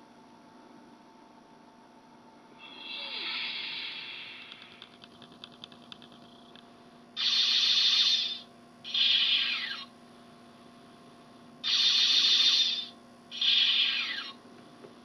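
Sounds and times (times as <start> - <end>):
faint electronic hum: 0.0 - 15.0
electronic weapon-fire blasts: 11.6 - 14.2.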